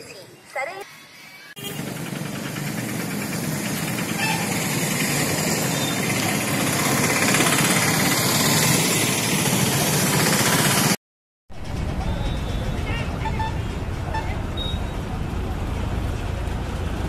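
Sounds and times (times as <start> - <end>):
engine running with rumbling hiss: 1.6 - 11.0.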